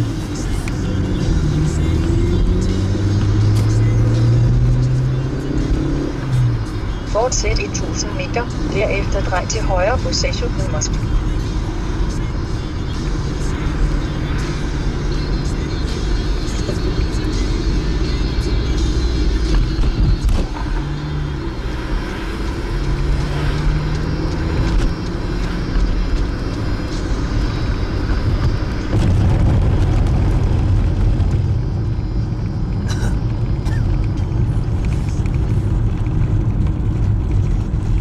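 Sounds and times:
engine and tyre rumble in car: 0:00.0 - 0:38.0.

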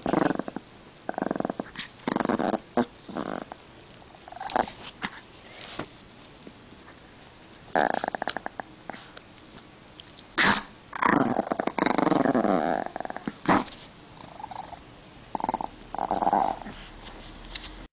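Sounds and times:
small dog growling: 0:00.0 - 0:05.2, 0:07.7 - 0:09.2, 0:10.4 - 0:17.0.

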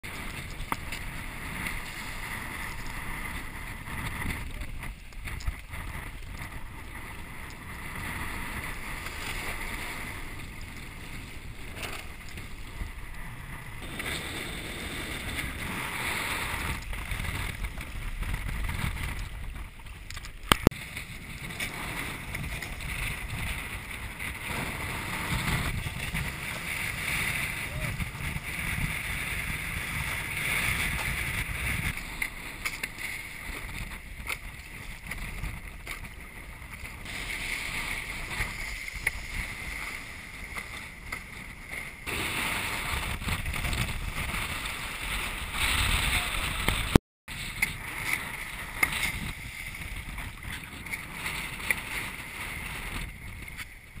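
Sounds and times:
board hull slapping water: 0:00.0 - 0:54.0
wind buffeting microphone: 0:00.0 - 0:54.0.

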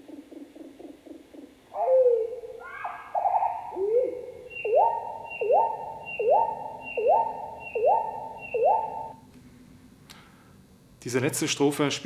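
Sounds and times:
fainter higher tone: 0:01.8 - 0:09.2
slowed bird song notes: 0:01.8 - 0:09.2.

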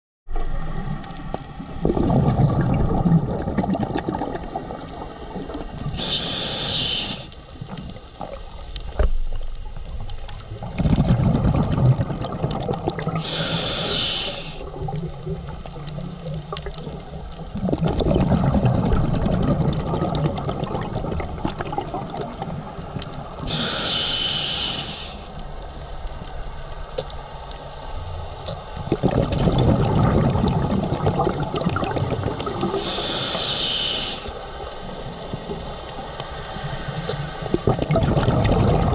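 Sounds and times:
regulator bubbling exhale: 0:00.4 - 0:08.4, 0:10.3 - 0:25.4, 0:28.5 - 0:34.4, 0:36.7 - 0:38.9
regulator hiss of inhalation: 0:05.9 - 0:07.4, 0:13.2 - 0:14.7, 0:23.4 - 0:25.4, 0:32.7 - 0:34.6.

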